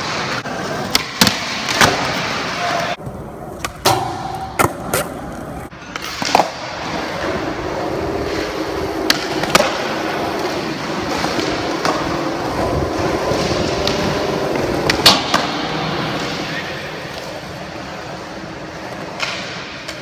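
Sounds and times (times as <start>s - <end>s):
skateboard wheels rolling on concrete: 0.0s - 20.0s
skateboard clacking on ground: 2.8s - 17.6s.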